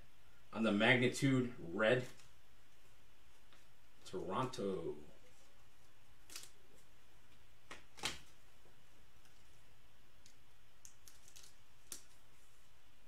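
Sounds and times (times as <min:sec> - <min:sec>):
faint steady hiss: 0:00.0 - 0:13.0.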